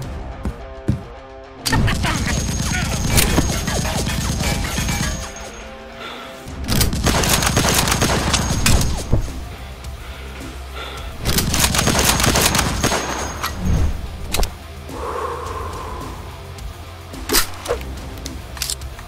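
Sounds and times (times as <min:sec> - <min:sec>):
background music: 0:00.0 - 0:19.0
rapid gunfire: 0:01.7 - 0:05.6, 0:06.7 - 0:09.0, 0:11.2 - 0:13.4.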